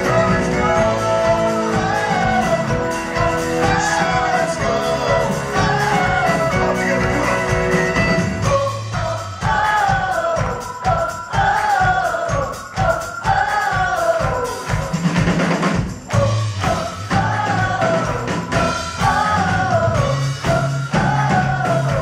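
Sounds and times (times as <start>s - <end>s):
sliding lead melody: 0.0s - 8.8s
bass: 0.0s - 22.0s
drum kit beat: 0.0s - 22.0s.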